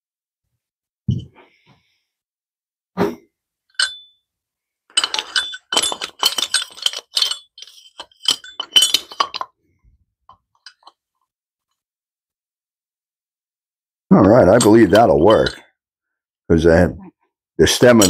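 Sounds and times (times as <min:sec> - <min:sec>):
metal tools clinking on workbench: 0:03.7 - 0:04.2, 0:04.9 - 0:09.6, 0:10.3 - 0:11.0, 0:14.2 - 0:15.6, 0:17.7 - 0:18.0
ringing metal clank: 0:03.8 - 0:04.2.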